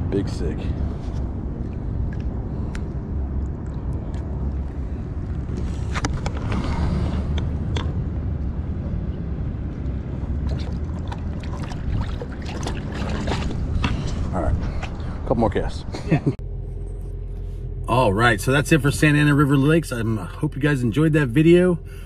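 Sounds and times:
water splashing: 0:10.2 - 0:14.3.

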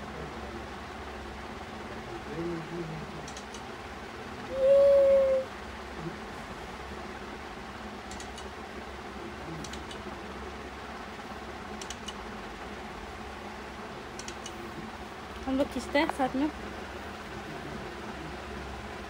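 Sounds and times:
room hiss and hum: 0:00.0 - 0:19.0
faint light clicks: 0:11.8 - 0:12.2.

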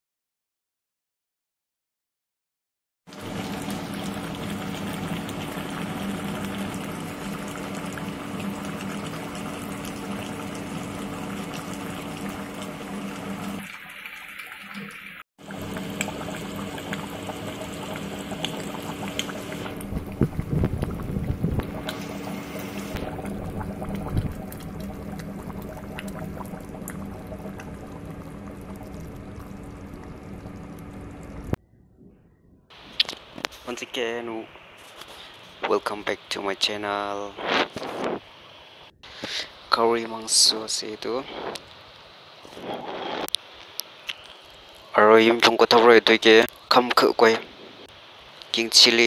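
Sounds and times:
curry bubbling in a pot: 0:03.1 - 0:14.6, 0:15.4 - 0:31.5
steady low hum: 0:15.4 - 0:34.6.

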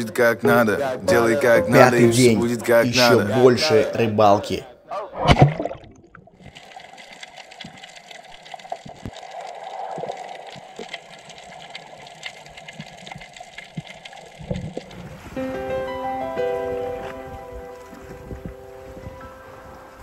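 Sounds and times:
underwater clicks and crackles: 0:05.2 - 0:15.4, 0:17.3 - 0:19.4
muffled underwater hiss: 0:17.1 - 0:20.0.

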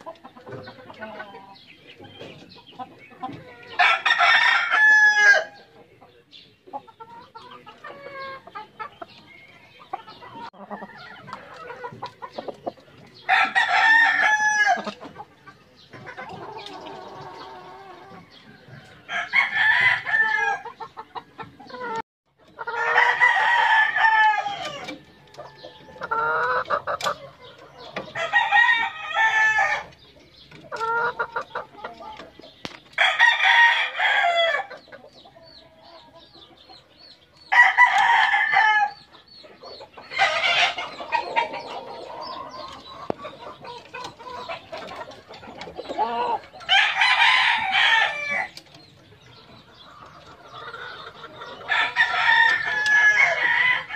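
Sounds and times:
chickens clucking: 0:00.0 - 0:53.9
roosters crowing: 0:03.4 - 0:05.7, 0:13.2 - 0:15.0, 0:16.4 - 0:20.8, 0:22.6 - 0:26.8, 0:28.0 - 0:30.0, 0:33.0 - 0:34.8, 0:37.5 - 0:39.1, 0:40.1 - 0:43.0, 0:45.9 - 0:48.7, 0:50.0 - 0:53.9.

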